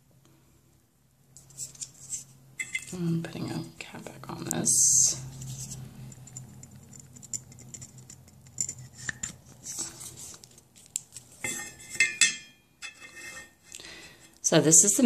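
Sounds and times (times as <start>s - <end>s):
plastic test clicking and scraping: 5.4s - 11.5s.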